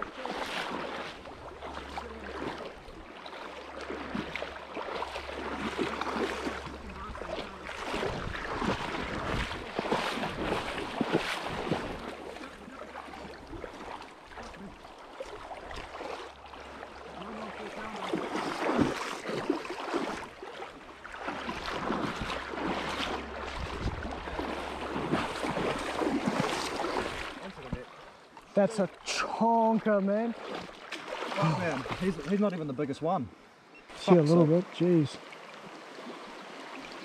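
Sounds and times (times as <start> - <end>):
river rushing and splashing: 0.0 - 32.4
wind buffeting microphone: 6.0 - 12.2, 21.6 - 27.3.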